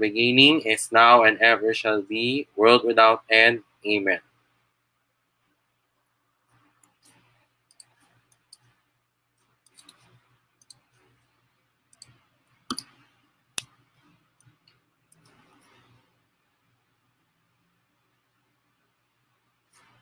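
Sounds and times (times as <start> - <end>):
faint steady hum: 0.0 - 20.0
computer mouse clicks: 6.5 - 8.8, 9.7 - 11.1, 11.9 - 16.0.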